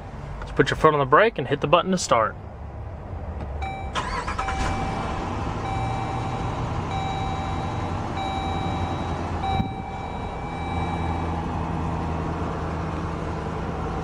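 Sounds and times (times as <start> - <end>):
dashboard warning chime: 3.6 - 11.6
car engine idling: 3.6 - 14.0.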